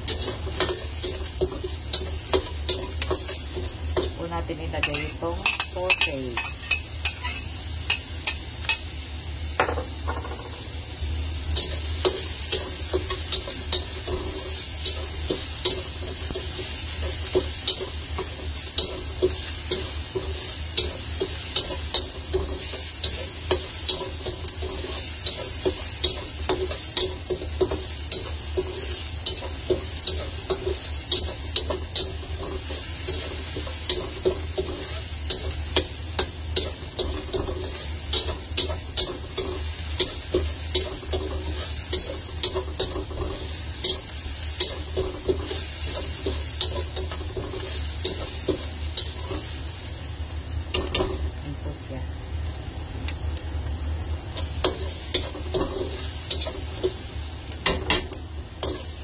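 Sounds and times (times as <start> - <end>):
sausage sizzling in oil: 0.0 - 59.0
metal spatula scraping wok: 6.4 - 8.0.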